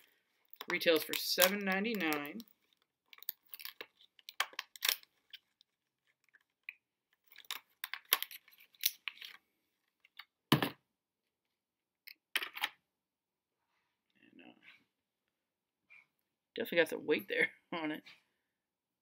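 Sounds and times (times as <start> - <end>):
plastic packaging crinkling and ripping: 0.5 - 6.6.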